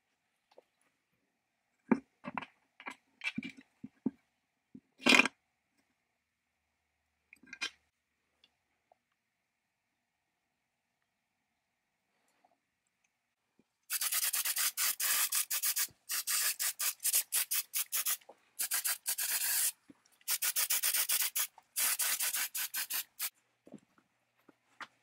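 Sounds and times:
aerosol spray can hissing: 13.9 - 23.3.

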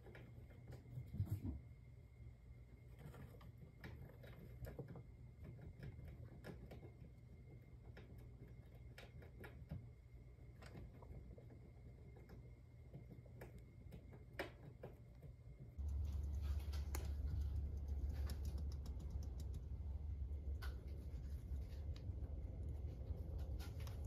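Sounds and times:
low steady hum: 0.0 - 24.0
hamster gnawing a nut: 2.9 - 24.0
sharp ticks: 15.8 - 20.8.

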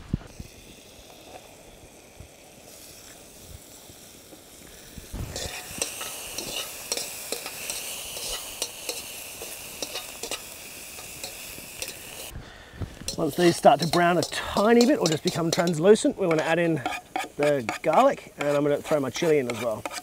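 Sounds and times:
food sizzling in butter: 0.0 - 20.0
metal utensil scraping a pan: 5.3 - 12.3, 13.1 - 20.0.

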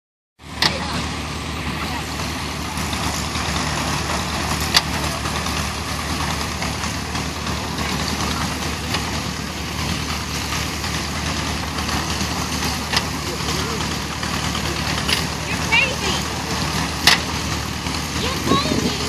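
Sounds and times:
tractor engine running: 0.4 - 19.0.

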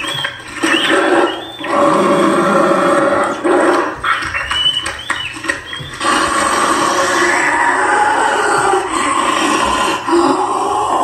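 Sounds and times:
growling creature voice: 0.9 - 4.0, 6.0 - 11.0
high rat squeaks: 4.0 - 6.2.

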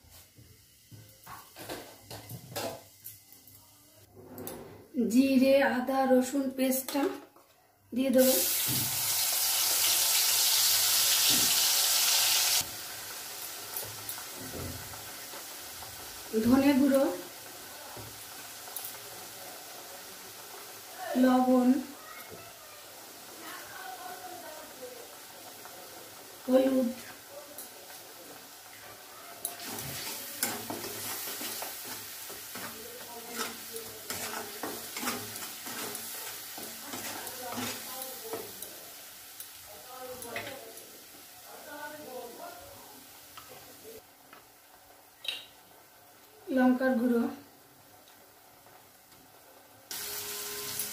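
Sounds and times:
paste sizzling in hot oil: 8.2 - 45.2, 49.9 - 50.9
light stirring: 28.7 - 38.8
metal spatula scraping pan: 29.4 - 38.0.

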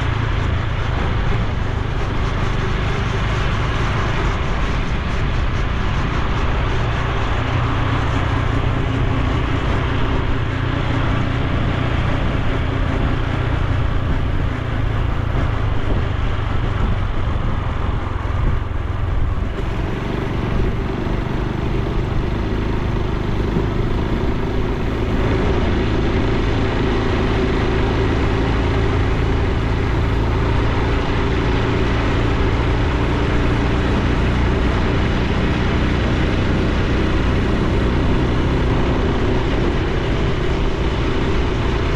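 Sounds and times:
motorcycle engine running: 0.0 - 41.9
road noise: 0.0 - 41.9
wind noise: 0.0 - 41.9.

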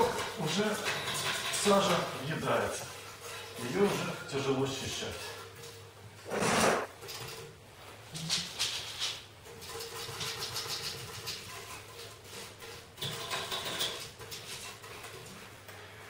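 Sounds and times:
brush scrubbing glass: 8.2 - 15.6.

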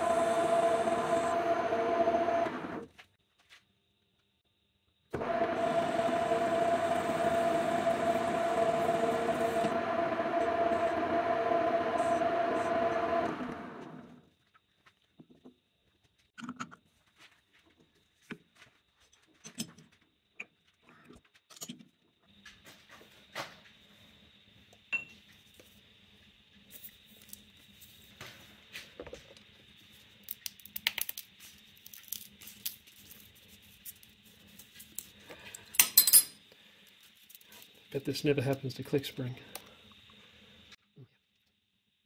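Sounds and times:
metal tools clinking: 35.8 - 36.4.

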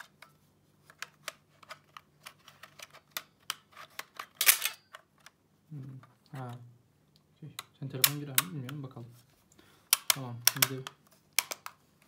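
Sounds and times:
plastic controller clicks and rattles: 0.9 - 5.4, 7.5 - 8.9, 9.9 - 11.8.

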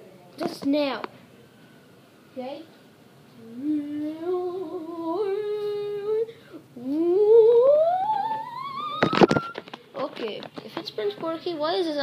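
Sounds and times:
person humming: 3.4 - 9.1.

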